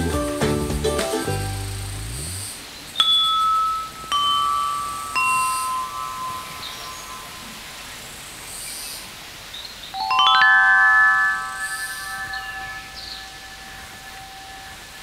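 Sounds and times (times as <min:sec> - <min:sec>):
metal chimes ringing: 0:03.0 - 0:08.5, 0:09.9 - 0:15.0.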